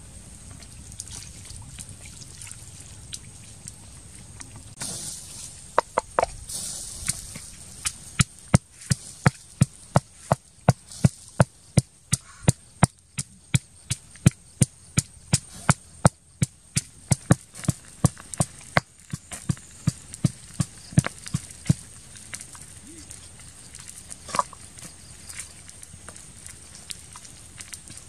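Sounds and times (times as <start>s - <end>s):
pestle pounding in mortar: 5.8s - 6.4s.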